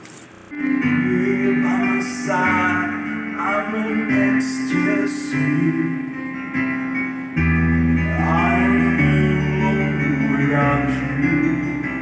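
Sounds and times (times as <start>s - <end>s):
bass: 0.4s - 12.0s
backing track with guitar: 0.5s - 12.0s
man singing into microphone: 0.8s - 6.2s, 8.0s - 12.0s.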